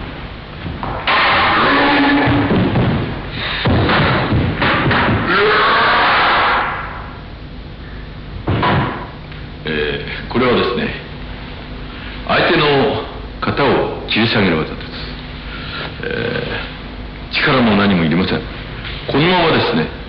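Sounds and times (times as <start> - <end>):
feet stamping on wooden floor: 2.3 - 5.3.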